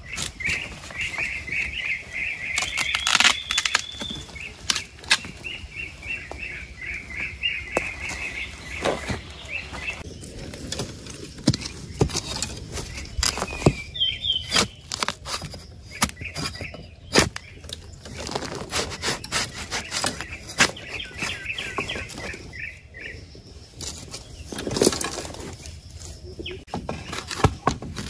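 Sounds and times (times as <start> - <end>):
twigs and leaves snapping: 0.0 - 6.4.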